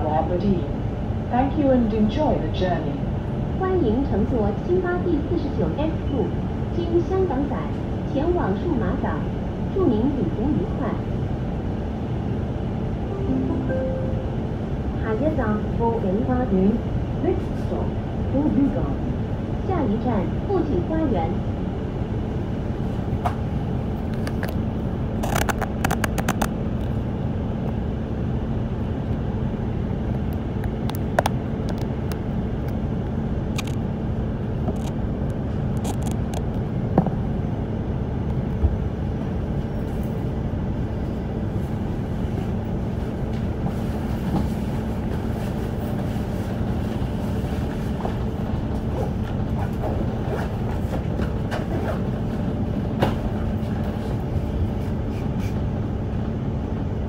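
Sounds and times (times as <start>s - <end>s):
bus engine and road drone: 0.0s - 57.0s
low hum: 13.0s - 16.2s
rattles and clicks: 25.2s - 26.6s.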